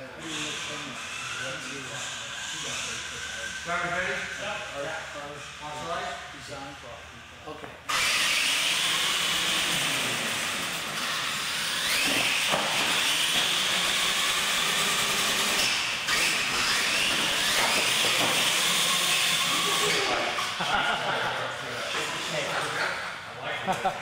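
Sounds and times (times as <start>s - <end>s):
electric toy trucks racing: 0.0s - 7.3s, 7.9s - 23.8s
rising motor whine: 7.9s - 20.6s.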